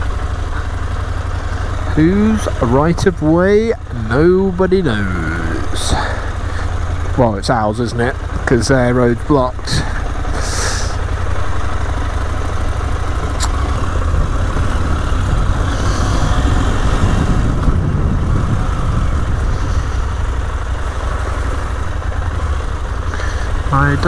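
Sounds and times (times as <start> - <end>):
motorcycle engine rumbling: 0.0 - 24.0
sharp click: 13.3 - 13.8.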